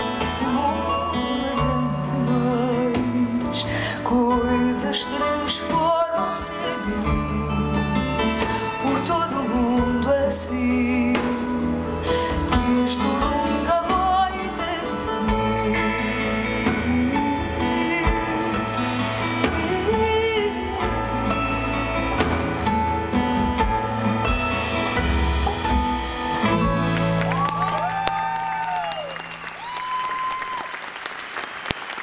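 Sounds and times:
woman singing with vibrato: 0.0s - 22.8s
band playing bass guitars percussion: 0.0s - 30.3s.

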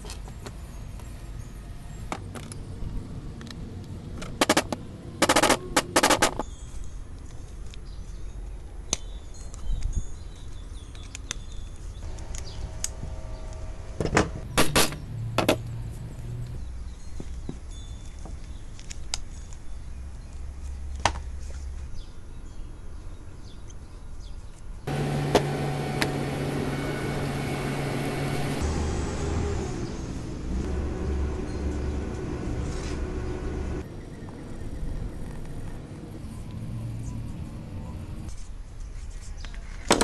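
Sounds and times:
low hum: 12.0s - 16.4s, 24.9s - 38.3s.

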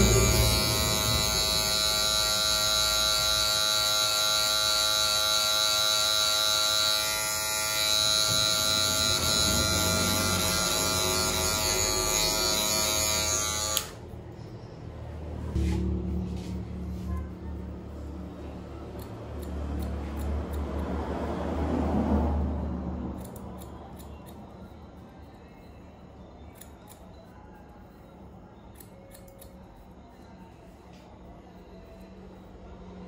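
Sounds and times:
electric hair clipper running: 0.0s - 14.0s.

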